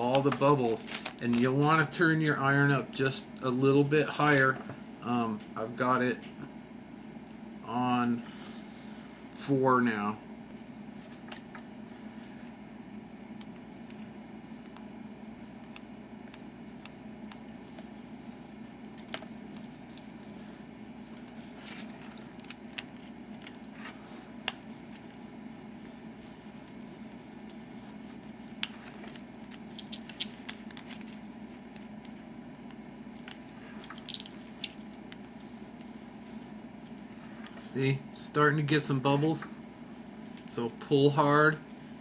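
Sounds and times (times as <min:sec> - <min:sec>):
steady low hum: 0:00.0 - 0:42.0
plastic film crinkling: 0:00.1 - 0:01.6.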